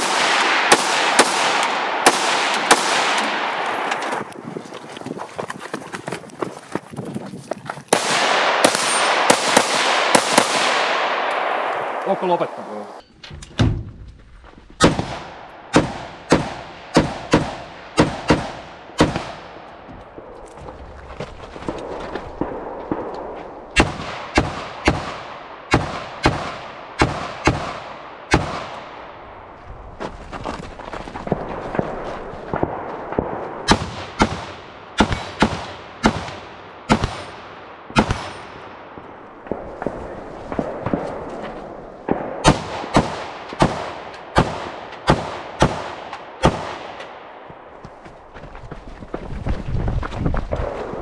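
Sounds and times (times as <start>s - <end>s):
rifle shots with echo: 0.0s - 4.1s, 7.9s - 12.6s, 14.8s - 20.3s, 21.8s - 29.2s, 31.3s - 47.7s.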